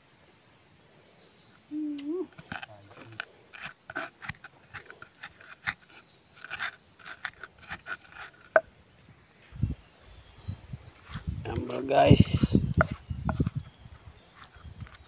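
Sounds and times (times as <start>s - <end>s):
pestle crushing and grinding in mortar: 2.3s - 8.7s, 12.2s - 15.0s.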